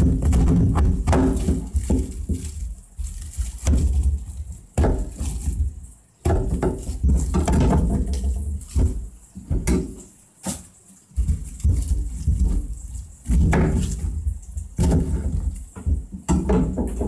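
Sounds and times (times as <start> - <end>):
crisp leaves rustling and crackling: 0.0 - 17.0.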